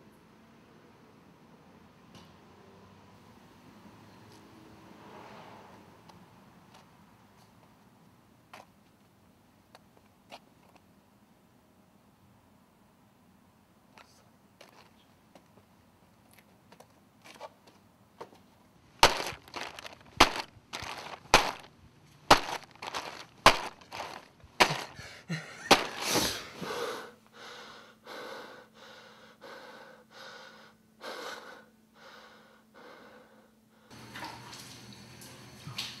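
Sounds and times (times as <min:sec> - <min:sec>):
loud hard thuds: 0:19.0 - 0:21.7, 0:22.3 - 0:25.0, 0:25.7 - 0:26.4
heavy gasping breaths: 0:24.6 - 0:33.9.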